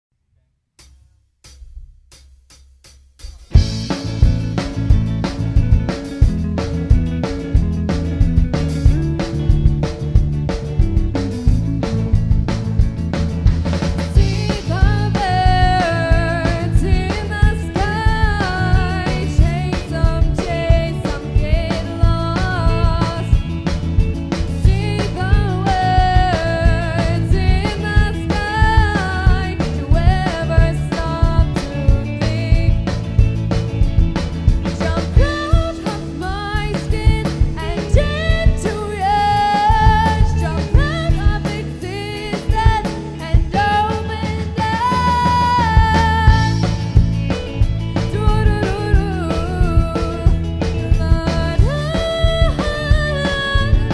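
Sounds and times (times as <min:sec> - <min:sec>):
bass notes: 0:00.8 - 0:53.9
drum kit: 0:00.8 - 0:53.9
guitar: 0:03.3 - 0:53.9
pop band playing live: 0:03.4 - 0:53.9
person singing: 0:14.2 - 0:23.4, 0:24.6 - 0:33.0, 0:34.8 - 0:47.0, 0:48.0 - 0:53.9.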